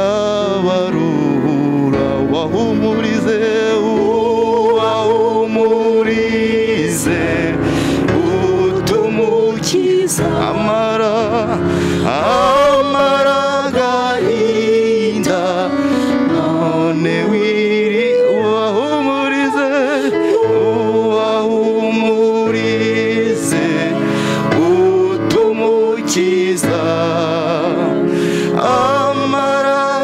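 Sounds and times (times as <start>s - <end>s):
held accompanying chords: 0.0s - 30.0s
person singing with vibrato: 0.0s - 30.0s.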